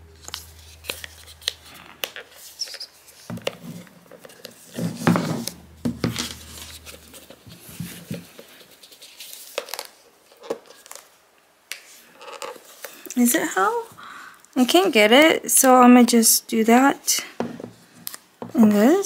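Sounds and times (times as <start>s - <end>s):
paper crinkling and tearing: 0.2s - 5.6s.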